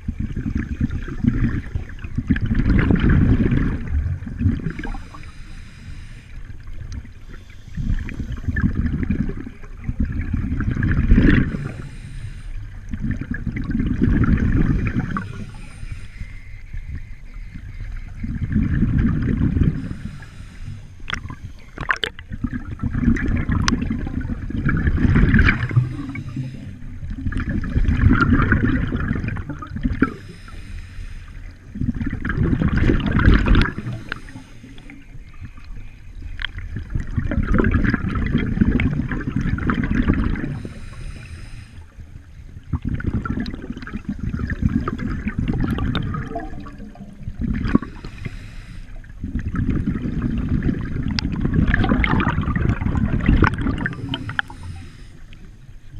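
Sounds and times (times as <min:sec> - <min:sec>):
exhaust bubbles rumbling: 0:00.0 - 0:05.4, 0:06.6 - 0:12.0, 0:12.7 - 0:15.7, 0:18.2 - 0:30.4, 0:31.5 - 0:35.6, 0:36.4 - 0:41.2, 0:42.4 - 0:48.4, 0:49.0 - 0:54.8
regulator hiss on inhale: 0:04.7 - 0:08.6, 0:11.5 - 0:13.0, 0:14.8 - 0:18.1, 0:19.6 - 0:21.9, 0:25.6 - 0:27.2, 0:30.0 - 0:31.8, 0:33.4 - 0:35.7, 0:40.4 - 0:42.4, 0:47.7 - 0:49.2, 0:53.8 - 0:55.7.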